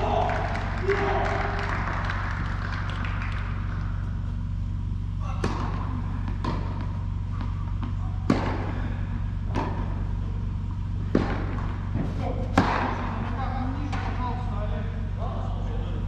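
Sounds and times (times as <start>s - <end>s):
steady low hum: 0.0s - 16.0s
racket hitting tennis ball: 5.2s - 14.2s
tennis ball bouncing: 5.2s - 14.3s.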